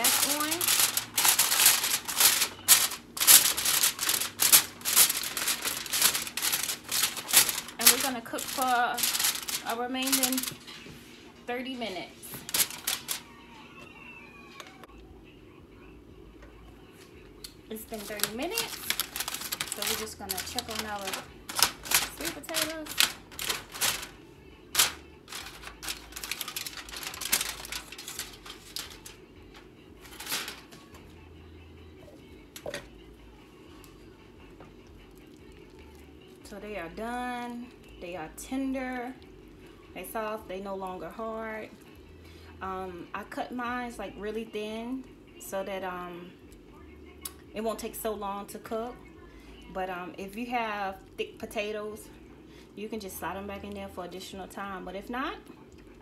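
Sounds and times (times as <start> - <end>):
aluminum foil crinkling: 0.0 - 13.4, 17.7 - 31.0.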